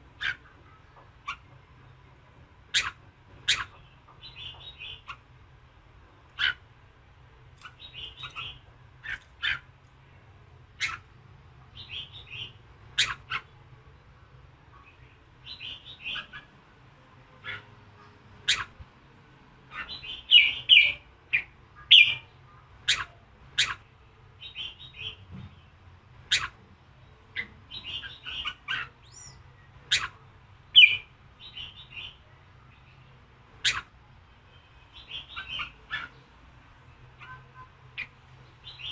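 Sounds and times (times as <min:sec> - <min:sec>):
bird chattering: 0:00.0 - 0:01.6, 0:02.6 - 0:05.3, 0:06.3 - 0:06.7, 0:07.6 - 0:09.8, 0:10.8 - 0:13.6, 0:14.7 - 0:16.6, 0:17.4 - 0:18.8, 0:19.7 - 0:25.2, 0:26.2 - 0:26.6, 0:27.3 - 0:32.3, 0:33.5 - 0:34.0, 0:34.9 - 0:38.9
bird calling sharp notes: 0:02.7 - 0:03.8, 0:10.8 - 0:11.1, 0:11.8 - 0:13.5, 0:18.4 - 0:18.8, 0:22.9 - 0:23.8, 0:26.3 - 0:26.6, 0:27.4 - 0:30.2, 0:33.6 - 0:33.9.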